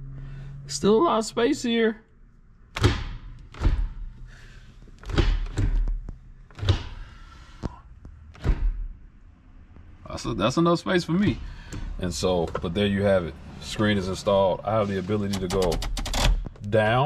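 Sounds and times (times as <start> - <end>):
gear shifter clunking: 15.1 - 16.7.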